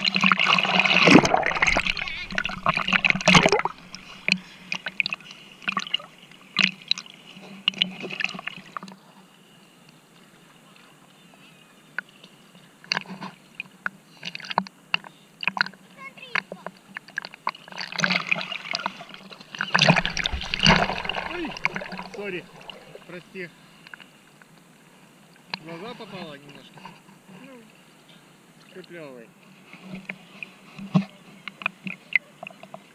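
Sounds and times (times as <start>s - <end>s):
water splashing around swimmer: 0.0s - 8.9s, 16.5s - 23.5s
water dripping: 0.4s - 7.1s, 19.5s - 23.2s.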